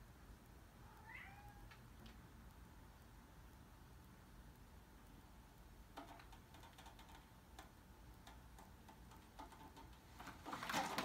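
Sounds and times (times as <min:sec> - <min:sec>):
faint irregular ticks and clicks: 0:01.6 - 0:10.5.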